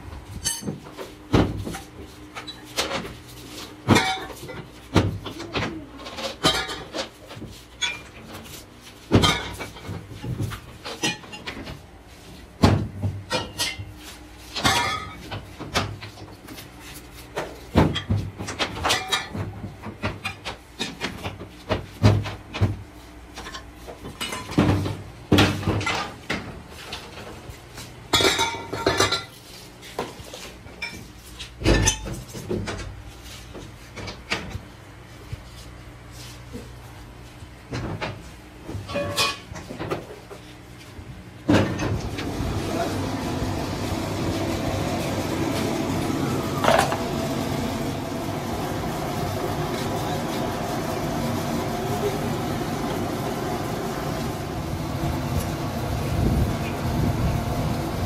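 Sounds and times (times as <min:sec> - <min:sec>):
tools clanking on metal table: 0:00.4 - 0:00.8, 0:46.6 - 0:47.1.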